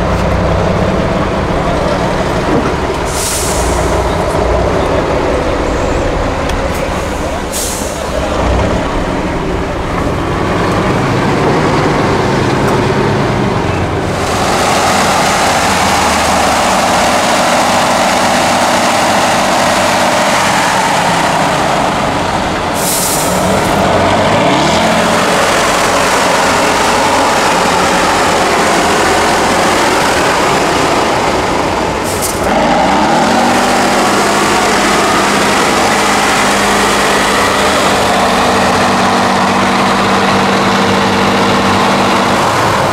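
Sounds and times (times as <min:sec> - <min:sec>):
truck diesel engine under load: 0:00.0 - 0:42.9
short hisses: 0:03.1 - 0:04.0, 0:22.8 - 0:23.4.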